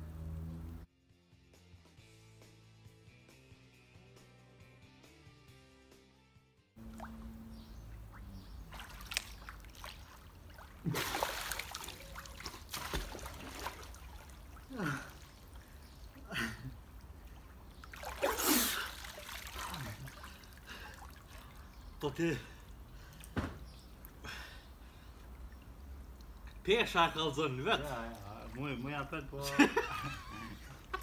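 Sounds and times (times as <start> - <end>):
water splashing and dripping: 6.8 - 24.2, 24.8 - 26.6
loud splash: 8.7 - 14.4, 17.9 - 21.1
people gasping for breath: 19.8 - 21.6.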